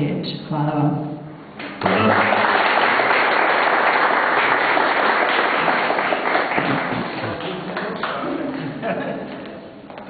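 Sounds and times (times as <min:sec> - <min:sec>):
audience applauding: 0:01.6 - 0:08.7.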